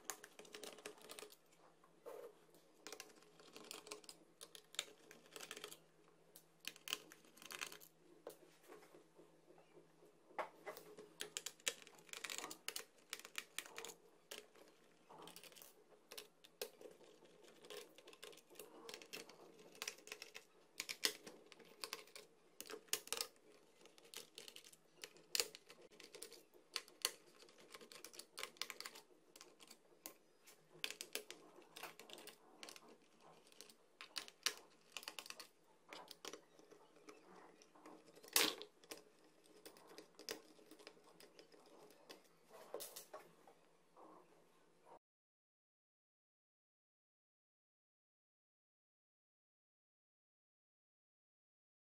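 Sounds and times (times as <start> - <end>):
small clicks and taps on plastic: 9.6 - 43.3.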